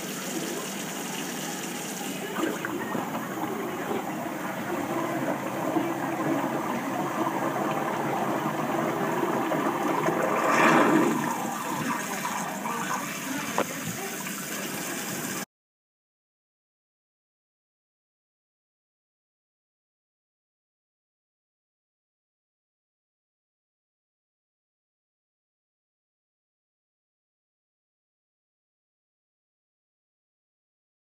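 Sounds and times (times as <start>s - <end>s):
faucet stream pouring: 0.0s - 15.4s
water draining down sink: 0.0s - 15.4s.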